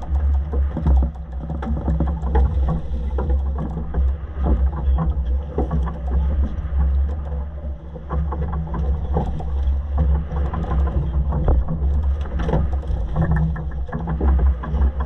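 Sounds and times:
boat engine rumble: 0:00.0 - 0:15.0
water splashing against hull: 0:00.0 - 0:15.0
knocks and rattles on deck: 0:08.0 - 0:15.0.

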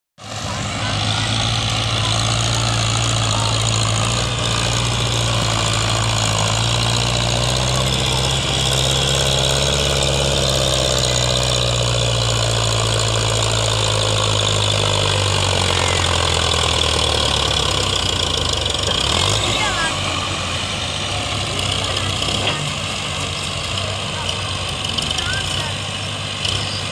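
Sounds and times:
tractor diesel engine under load: 0:00.2 - 0:26.9.

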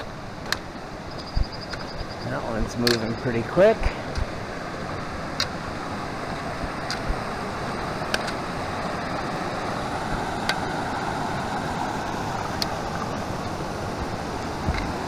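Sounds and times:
mountain creek rushing: 0:00.0 - 0:15.0
sharp clicks: 0:02.8 - 0:03.2.

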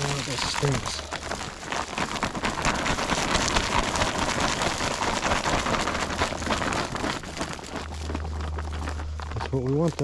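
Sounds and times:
corn kernels pattering on ground: 0:00.0 - 0:10.0.

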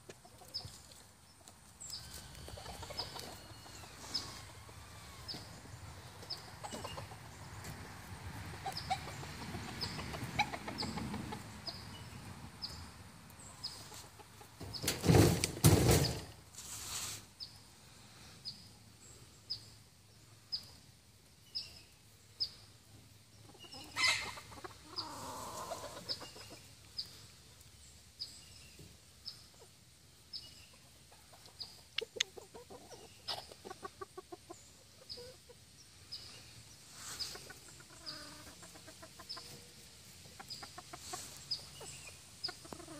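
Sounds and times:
roosters clucking: 0:00.0 - 0:42.9.

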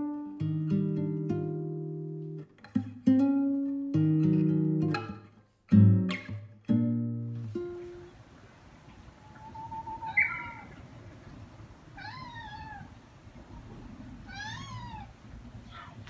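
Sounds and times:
cat meowing: 0:12.0 - 0:13.0, 0:14.3 - 0:16.0.

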